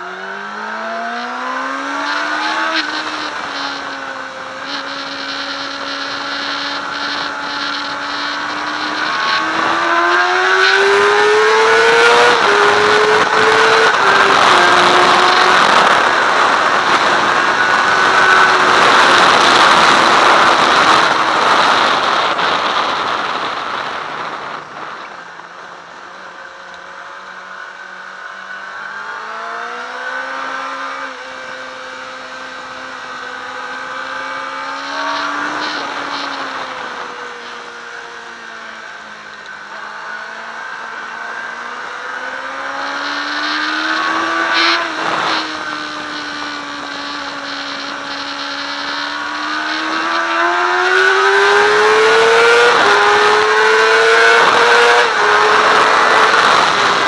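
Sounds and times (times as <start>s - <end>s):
motorcycle engine: 0.0s - 57.0s
wind rushing: 33.6s - 37.9s.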